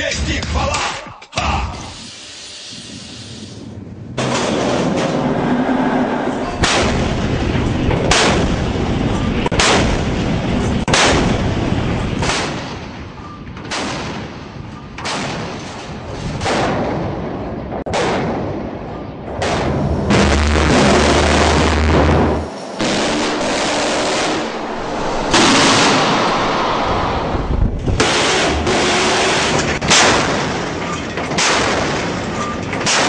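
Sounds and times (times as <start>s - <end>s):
naval gun firing shots: 6.6s - 7.3s, 8.0s - 8.7s, 9.5s - 17.3s, 28.0s - 33.0s.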